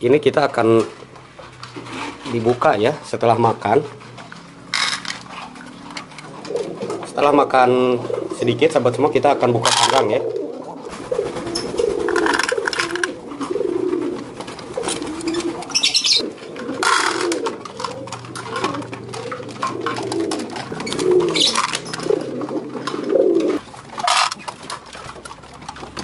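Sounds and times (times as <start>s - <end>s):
pigeons cooing: 0.6s - 26.0s
sharp clicks and rustles: 3.9s - 7.2s, 10.9s - 26.0s.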